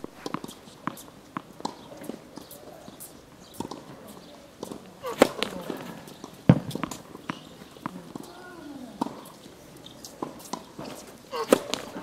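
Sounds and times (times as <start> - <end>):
tennis ball pops and taps: 0.2 - 8.4, 9.0 - 9.4, 10.0 - 12.0
loud tennis ball hits: 4.6 - 8.3, 10.2 - 12.0.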